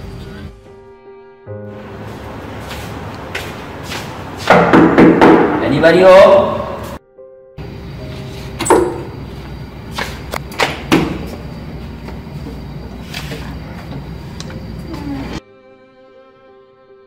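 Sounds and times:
soft music: 0.0 - 4.5, 5.7 - 9.9
room noise: 1.7 - 7.0
door opening: 8.6 - 9.2.

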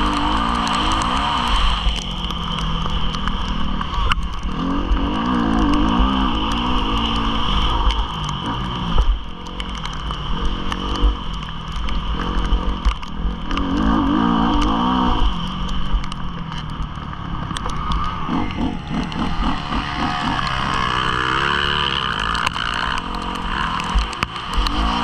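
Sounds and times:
motocross bike engine revving: 0.0 - 9.0, 12.0 - 15.6, 17.6 - 25.0
wind rumbling on microphone: 0.0 - 25.0
sharp clicks: 15.4 - 25.0.

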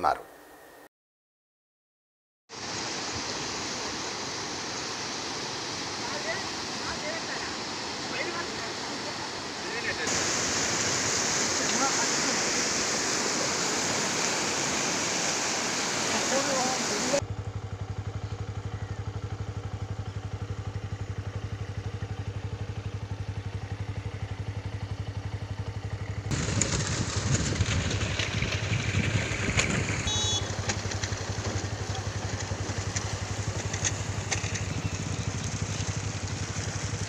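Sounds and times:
floodwater rushing: 2.5 - 17.2, 26.3 - 37.0
small engine idling: 16.3 - 37.0.

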